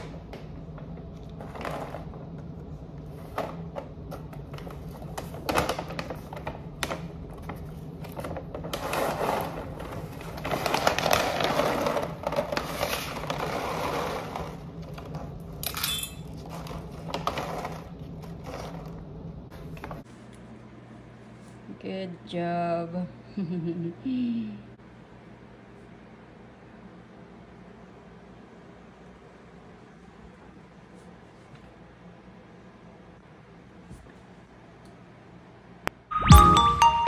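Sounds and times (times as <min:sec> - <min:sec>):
plastic bag crinkling: 0:04.6 - 0:15.4.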